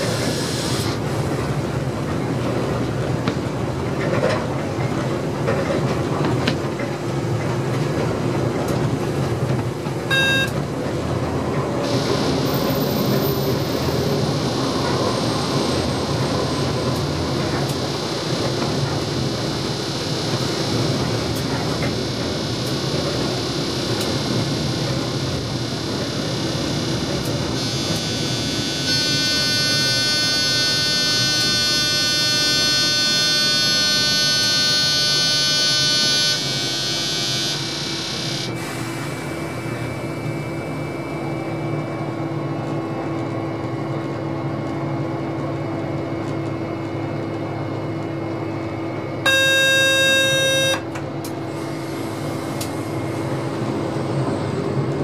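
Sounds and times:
train running noise: 0:00.0 - 0:55.0
electronic warning tone: 0:10.0 - 0:10.8, 0:11.7 - 0:42.1, 0:49.2 - 0:52.2
short loud tone: 0:10.1 - 0:10.7, 0:11.8 - 0:41.6, 0:49.3 - 0:53.2.

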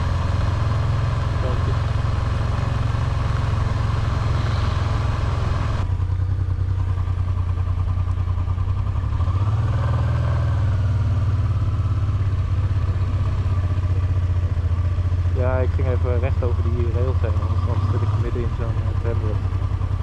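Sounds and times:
motorcycle engine at low revs: 0:00.0 - 0:20.0
hiss: 0:04.2 - 0:05.4.

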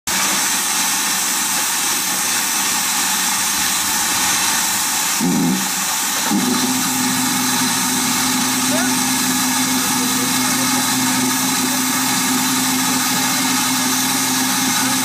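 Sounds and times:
steam locomotive hissing: 0:00.1 - 0:15.0
steady low hum: 0:06.2 - 0:15.0.

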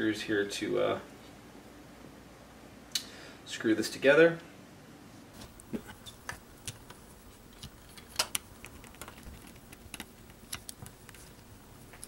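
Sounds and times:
parts being handled: 0:05.4 - 0:12.0.

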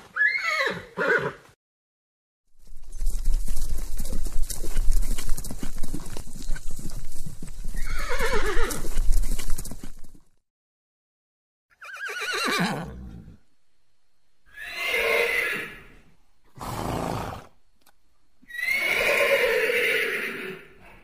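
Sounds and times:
horse whinnying: 0:00.1 - 0:01.4, 0:07.8 - 0:09.0, 0:11.7 - 0:13.4, 0:14.5 - 0:15.9, 0:16.6 - 0:17.5, 0:18.5 - 0:20.8.

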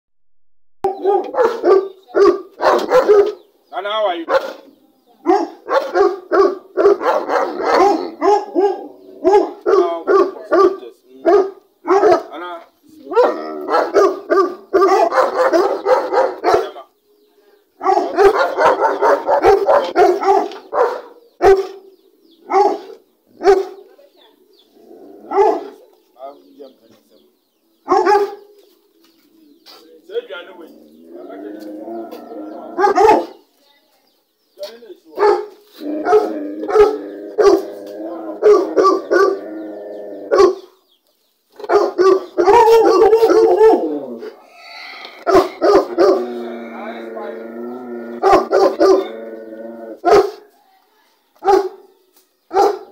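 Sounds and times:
dogs barking: 0:00.8 - 0:03.5, 0:04.1 - 0:12.4, 0:13.0 - 0:16.9, 0:17.8 - 0:24.4, 0:25.1 - 0:26.0, 0:27.8 - 0:28.6, 0:30.9 - 0:33.5, 0:35.1 - 0:40.8, 0:41.6 - 0:44.4, 0:45.2 - 0:50.5, 0:51.4 - 0:51.9, 0:52.5 - 0:52.9
dog crying: 0:48.0 - 0:49.3.

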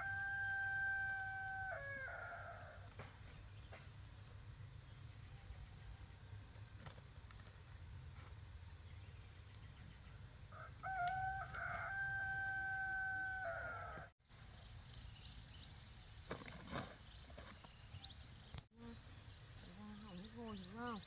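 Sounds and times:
rooster crowing: 0:00.0 - 0:02.9, 0:10.5 - 0:14.1.

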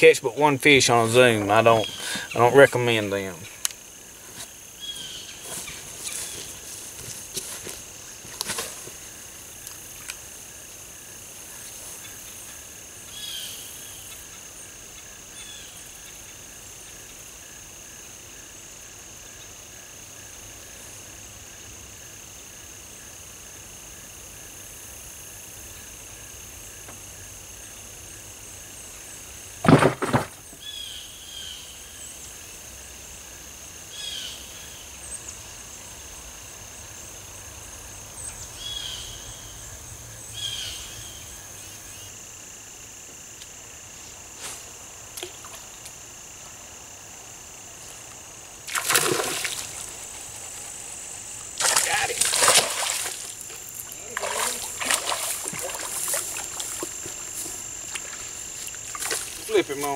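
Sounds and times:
insect chorus trilling: 0:00.0 - 0:59.9
bird chirps: 0:01.8 - 0:02.4.

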